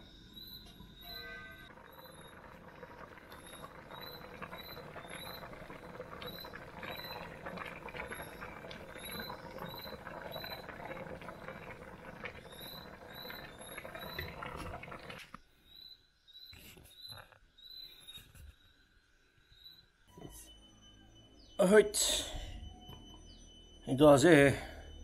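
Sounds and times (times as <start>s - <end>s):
stew boiling and bubbling: 0.0s - 15.8s.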